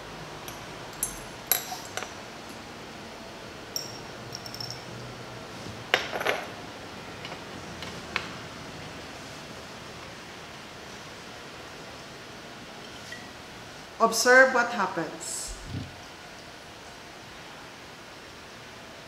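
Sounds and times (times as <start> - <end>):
glass lab ware clinking: 0.5 - 2.1, 3.8 - 5.0.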